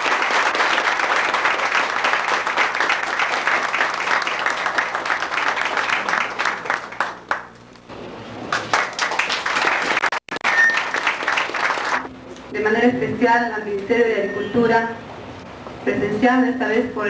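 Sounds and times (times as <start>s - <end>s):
audience applauding: 0.0s - 7.6s, 8.5s - 12.1s
scattered claps: 0.0s - 7.6s, 8.5s - 12.1s.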